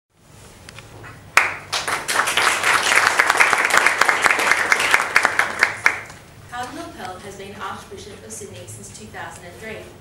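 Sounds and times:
audience applauding: 1.4 - 6.2.

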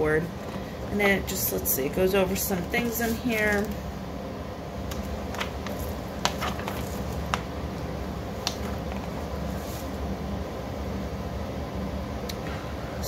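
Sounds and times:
low room hum: 0.0 - 13.0
page rustling: 2.8 - 3.8, 4.9 - 7.6, 8.3 - 10.0.

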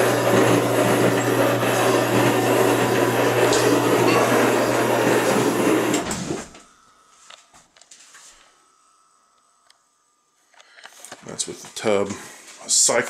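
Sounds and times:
electric motor humming: 0.0 - 7.0.

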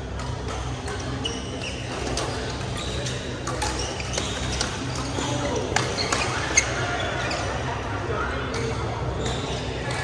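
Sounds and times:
shoe squeaks on court floor: 0.9 - 7.9, 9.1 - 10.0.

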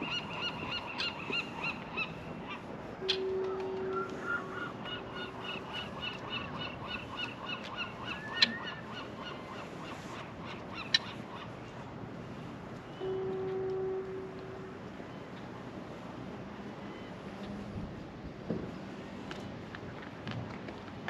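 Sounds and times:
gull calling: 0.0 - 11.5.

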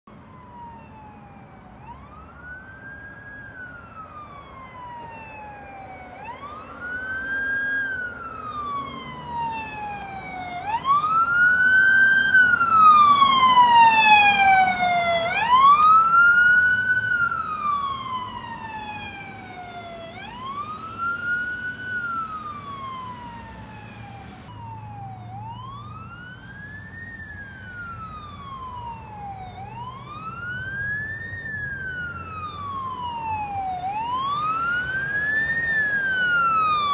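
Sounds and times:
electronic wail siren: 0.3 - 36.9.

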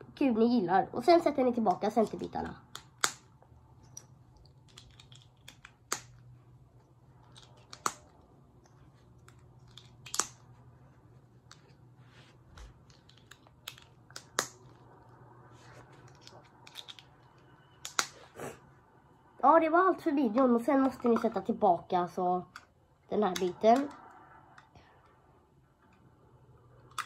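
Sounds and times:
plastic clicks and snaps: 1.7 - 6.2, 7.2 - 10.4, 12.9 - 14.8, 17.8 - 18.2.

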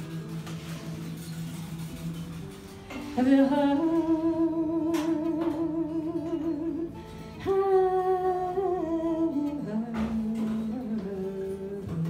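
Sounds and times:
acoustic guitar: 0.0 - 12.0
woman singing with vibrato: 3.0 - 12.0.

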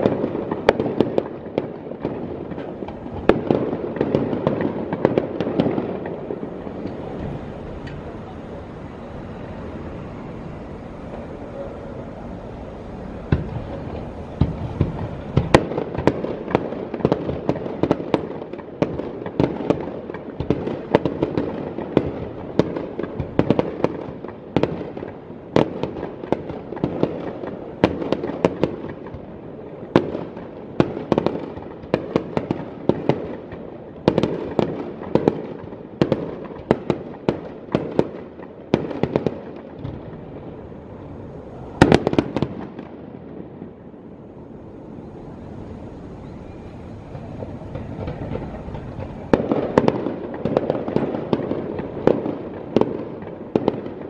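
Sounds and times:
firework shells bursting: 0.0 - 29.3, 45.4 - 54.0
continuous firework rumble: 0.0 - 54.0.

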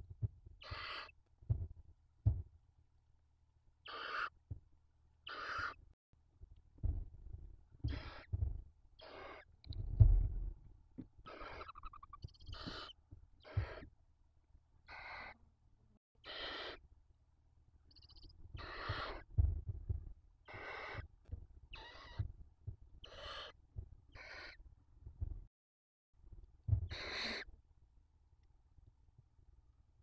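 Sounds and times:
owl chicks rasping hisses: 0.6 - 1.2, 3.8 - 4.3, 5.2 - 5.8, 9.0 - 9.5, 11.3 - 13.9, 14.9 - 15.4, 16.2 - 16.8, 18.6 - 19.2, 20.5 - 21.0, 23.0 - 23.6, 26.9 - 27.5
low thuds on nest floor: 1.5 - 2.5, 6.8 - 8.7, 9.7 - 13.9, 18.2 - 20.2.

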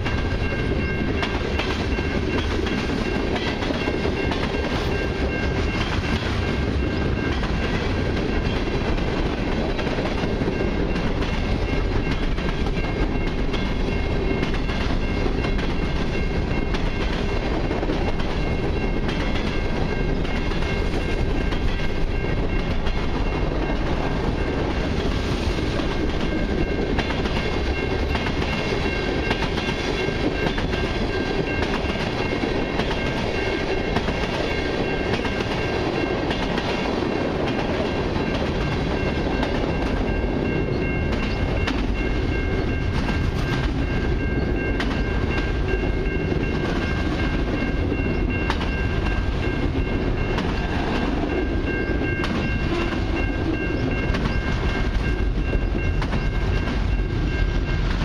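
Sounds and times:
train wheels rumbling on rails: 0.0 - 58.0
high ringing tone: 38.2 - 57.8.

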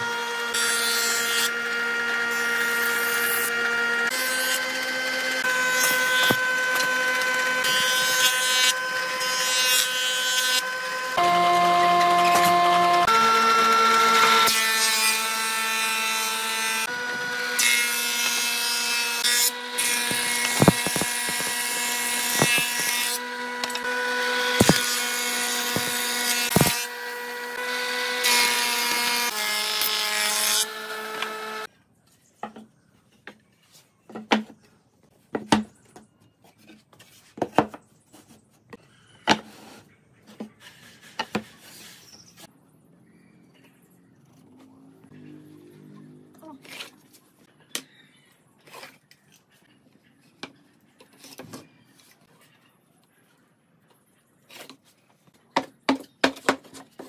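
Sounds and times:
power tool whining and cutting: 0.0 - 31.7.

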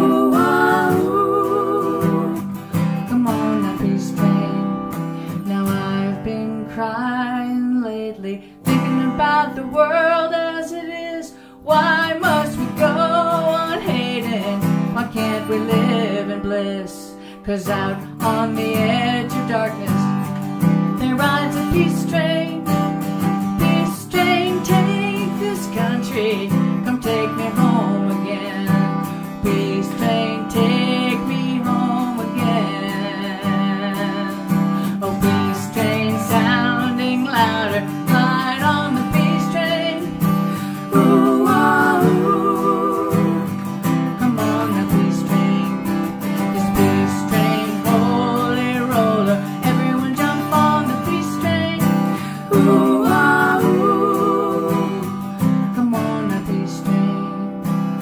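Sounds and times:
women singing together: 0.0 - 2.6, 35.0 - 43.7, 52.4 - 55.3
acoustic guitar strumming: 0.0 - 58.0.

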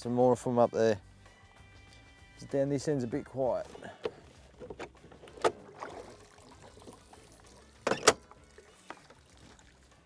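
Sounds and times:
trolling motor clunks: 3.6 - 7.1, 7.8 - 9.2.

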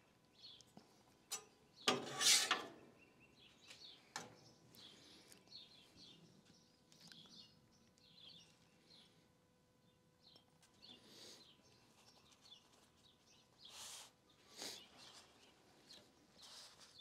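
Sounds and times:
faint birds chirping: 0.0 - 2.0, 2.7 - 17.0
metal spatula scraping griddle: 1.9 - 2.8.

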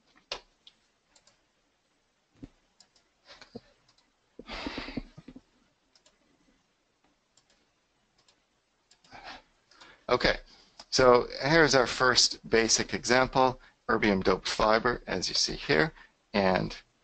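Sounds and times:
breath on microphone: 4.4 - 5.2
faint computer mouse clicks: 5.9 - 6.2.

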